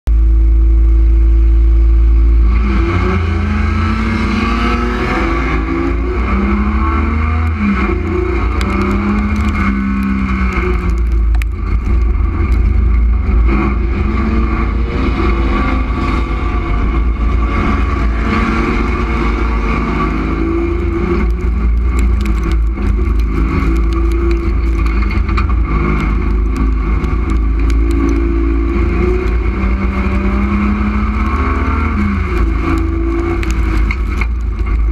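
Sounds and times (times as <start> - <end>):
race car engine revving: 1.2 - 34.9
clicks and knocks: 21.1 - 28.4.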